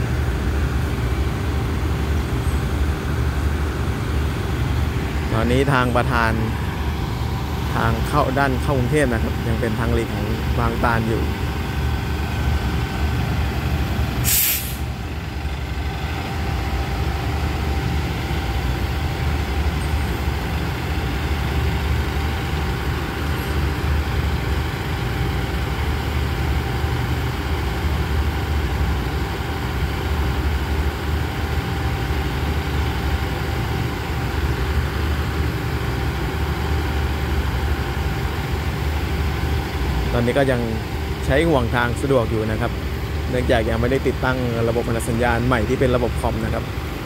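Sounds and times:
diesel train idling: 0:00.0 - 0:47.0
air brake hiss: 0:14.2 - 0:14.9.

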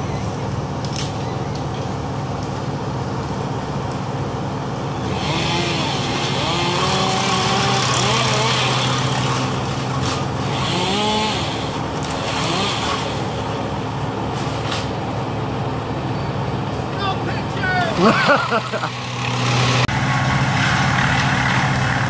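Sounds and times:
heavy machine engine running: 0:00.0 - 0:22.0
chainsaw revving and cutting: 0:05.0 - 0:13.6, 0:18.0 - 0:22.0.

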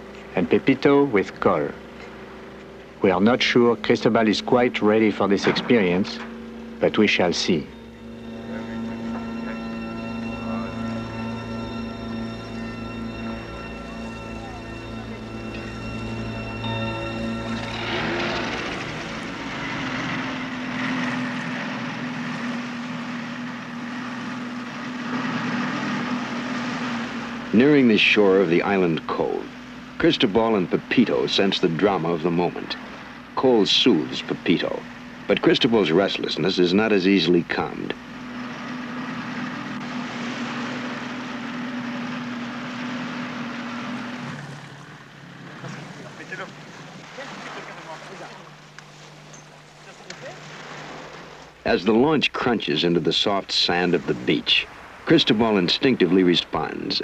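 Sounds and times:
boat engine droning: 0:00.0 - 0:57.0
water hissing along hull: 0:01.2 - 0:57.0.

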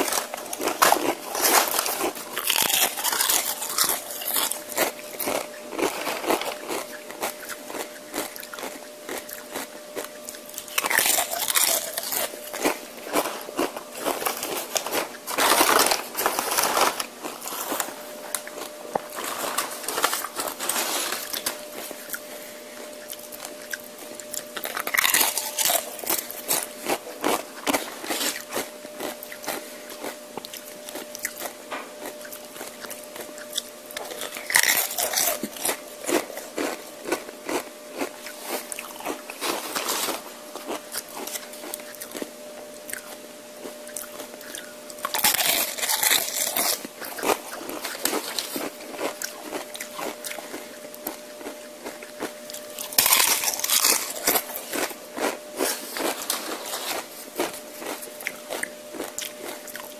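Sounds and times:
loud crunching bites of chips: 0:00.0 - 0:42.3, 0:42.9 - 0:59.9
quiet chewing: 0:00.0 - 0:59.9.

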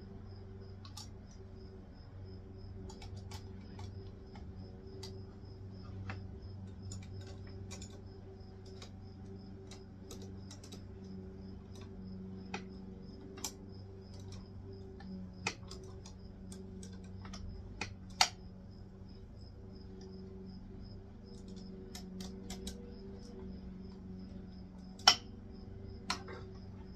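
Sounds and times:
low steady hum: 0:00.0 - 0:26.9
tool clicking on wire terminals: 0:02.8 - 0:05.3, 0:06.0 - 0:18.5, 0:21.2 - 0:24.0, 0:24.8 - 0:25.4.

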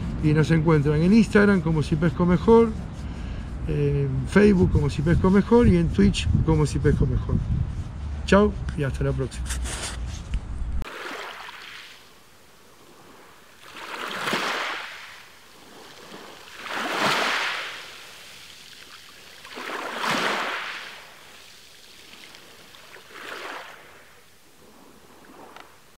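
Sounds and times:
water waves washing in: 0:10.8 - 0:26.0.

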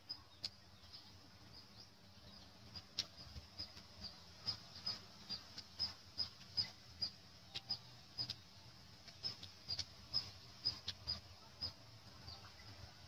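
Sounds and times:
small bird chirping: 0:00.0 - 0:13.0
faint clicks: 0:00.1 - 0:01.0, 0:02.7 - 0:06.7, 0:07.5 - 0:11.2.

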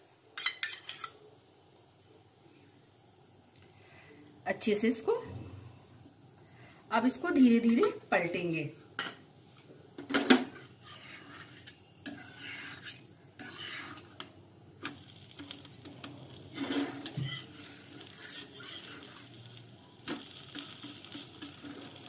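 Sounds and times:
low sizzling: 0:00.0 - 0:22.0
metal spatula scraping griddle: 0:10.4 - 0:14.2, 0:14.8 - 0:22.0.

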